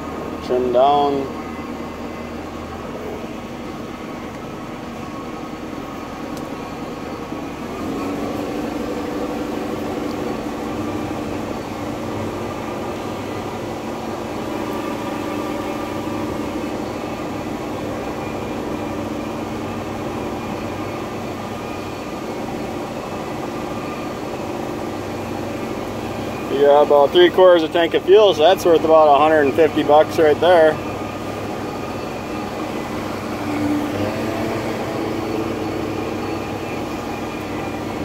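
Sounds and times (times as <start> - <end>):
boat engine humming: 0.0 - 38.0.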